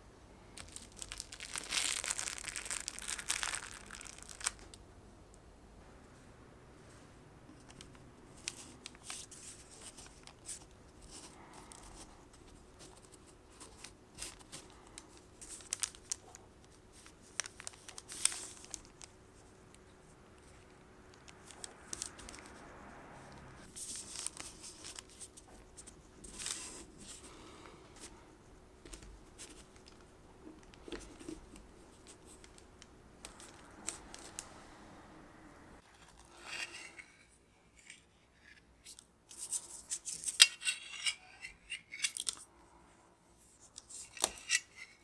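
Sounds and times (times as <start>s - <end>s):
faint steady hum: 0.0s - 45.0s
paper and dough rustling: 0.6s - 4.7s, 7.5s - 22.8s, 23.6s - 34.4s.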